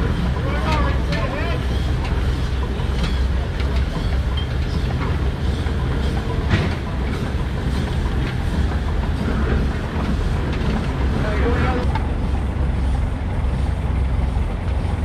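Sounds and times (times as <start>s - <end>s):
steam engine rumble: 0.0s - 15.0s
mechanical clanks: 0.6s - 12.1s.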